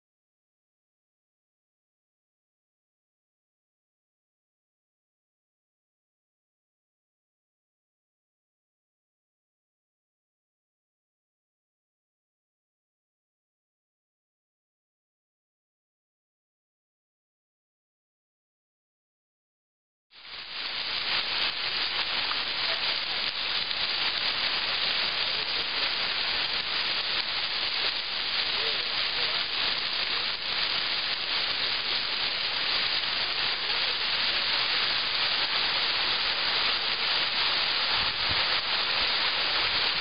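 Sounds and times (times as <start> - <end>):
fountain water splashing: 20.1 - 40.0.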